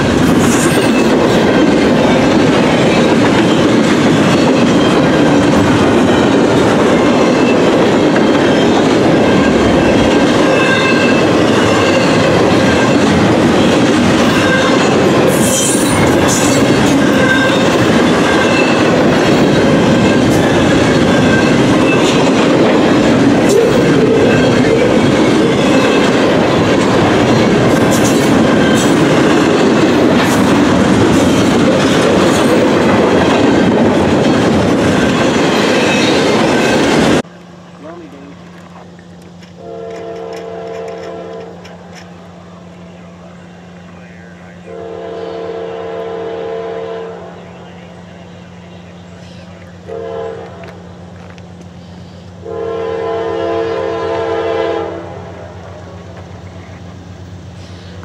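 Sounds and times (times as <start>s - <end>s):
sharp clacks of train wheels: 0.0s - 42.3s, 50.4s - 52.4s
train wheels rumbling on rail: 0.0s - 58.0s
wheel squeal: 3.4s - 19.0s.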